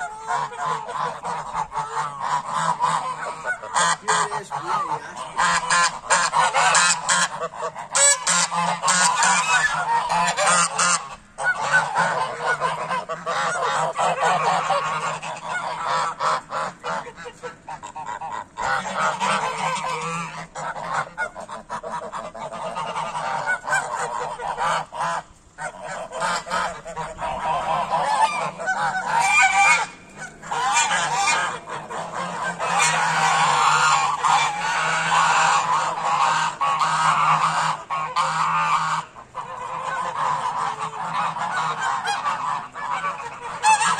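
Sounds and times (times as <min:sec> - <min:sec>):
geese honking: 0:00.0 - 0:43.9.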